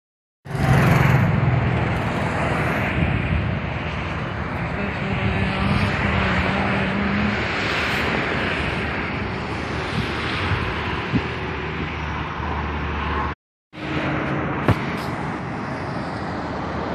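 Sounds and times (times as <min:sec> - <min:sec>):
wind on microphone: 0:00.6 - 0:13.3.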